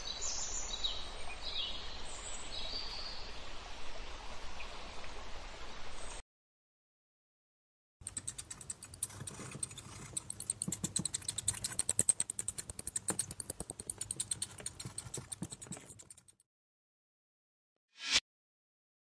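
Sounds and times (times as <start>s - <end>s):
bats chittering: 8.0s - 16.3s.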